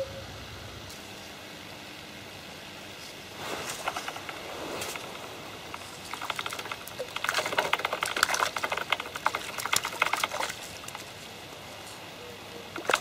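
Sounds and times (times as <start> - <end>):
fish splashing in water: 3.4 - 11.2, 12.7 - 13.0.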